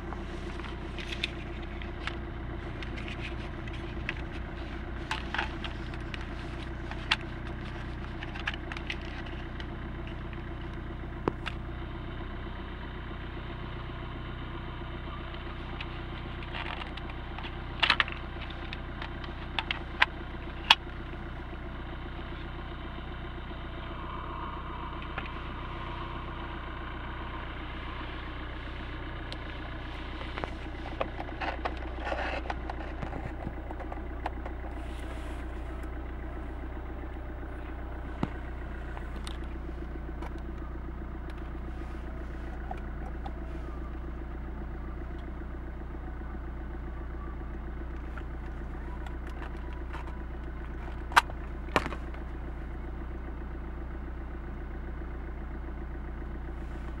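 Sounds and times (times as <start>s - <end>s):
adapter and cable clicks and rustles: 0.0s - 11.6s, 15.4s - 20.9s, 29.3s - 34.8s, 35.4s - 40.7s, 47.9s - 52.4s
car engine idling: 0.0s - 57.0s.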